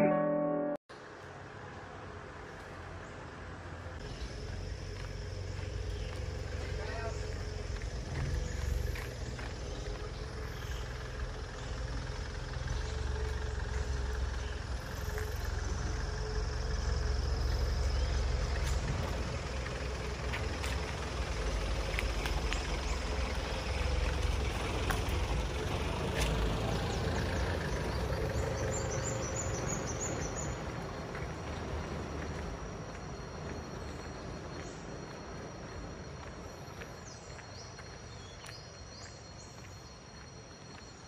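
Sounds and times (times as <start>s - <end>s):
low outdoor rumble: 1.8s - 38.0s.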